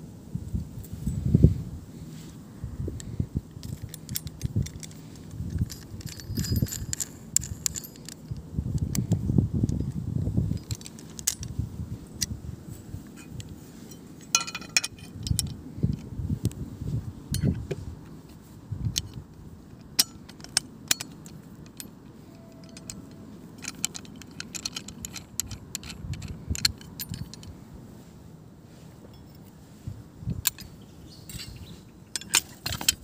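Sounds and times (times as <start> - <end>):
handling rustle: 0.6 - 33.0
metal clicks and clinks: 3.5 - 12.3, 13.0 - 16.1, 18.9 - 27.6, 30.4 - 33.0.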